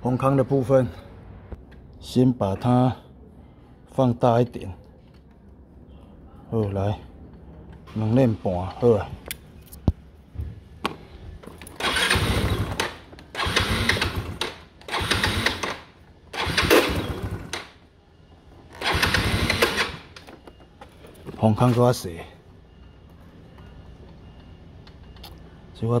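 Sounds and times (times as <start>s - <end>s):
scooter engine revving: 11.8s - 17.8s, 18.7s - 20.2s.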